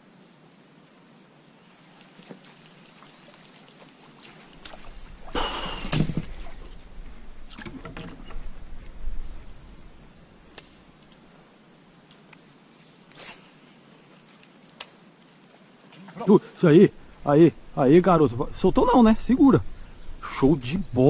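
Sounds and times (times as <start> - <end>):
water sloshing around a kayak: 1.7 - 10.0.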